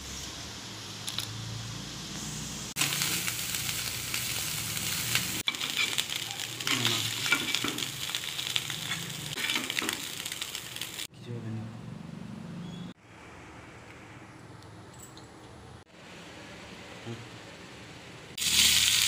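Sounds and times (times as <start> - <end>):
oil sizzling in a pan: 1.7 - 11.1, 18.4 - 19.0
metal spatula scraping wok: 5.3 - 8.0, 8.6 - 10.2.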